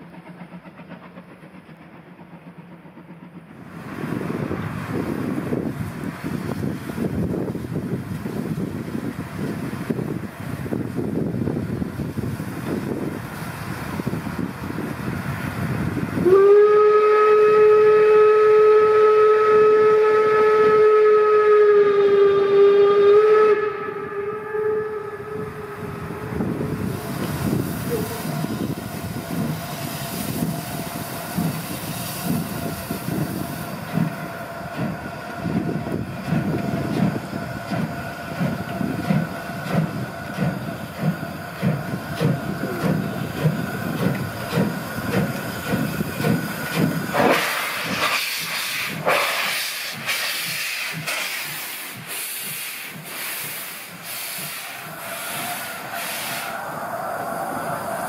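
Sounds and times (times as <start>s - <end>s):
locomotive exhaust beats: 0.0s - 56.6s
steam hiss: 0.0s - 58.0s
steam whistle blast: 16.2s - 26.6s, 54.1s - 56.6s.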